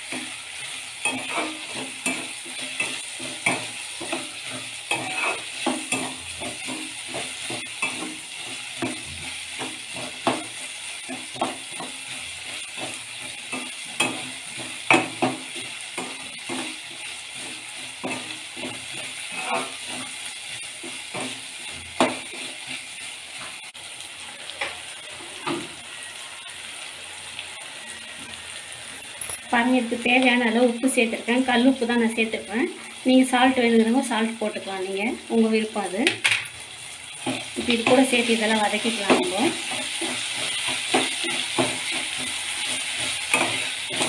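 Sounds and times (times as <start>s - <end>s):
metal spatula scraping metal pan: 0.0s - 23.5s
vegetables sizzling in oil: 0.0s - 44.0s.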